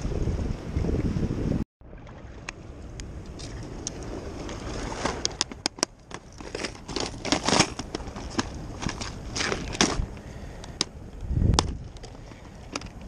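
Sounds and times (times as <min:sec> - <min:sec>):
bag crinkling rustle: 0:04.7 - 0:10.1
plastic boxes clattering: 0:05.4 - 0:10.1.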